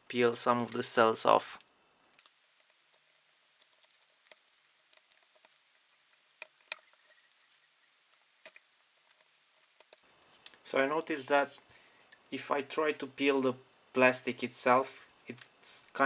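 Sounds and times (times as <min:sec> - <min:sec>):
plastic clicks and crackles: 0:02.2 - 0:10.0.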